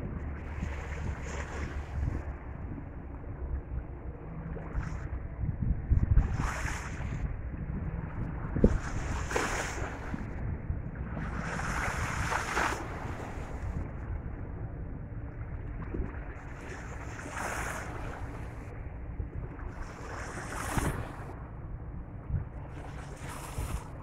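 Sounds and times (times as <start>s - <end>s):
wind rumbling on microphone: 0.0s - 24.0s
water washing against shore: 11.2s - 13.8s.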